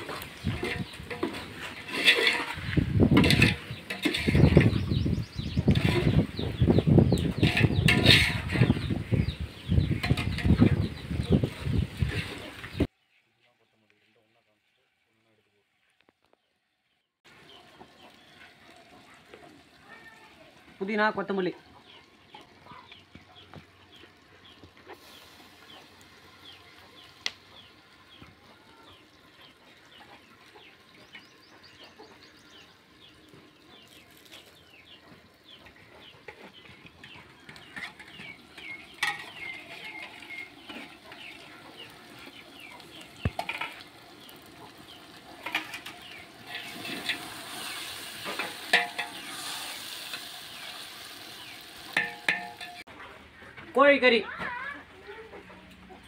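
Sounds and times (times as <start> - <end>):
metal spoon scraping pot: 0.0 - 6.4, 7.1 - 8.9, 9.8 - 11.0, 36.3 - 41.8, 45.3 - 50.8, 51.9 - 52.9
leaves sizzling in a pot: 0.0 - 13.1, 17.3 - 52.9.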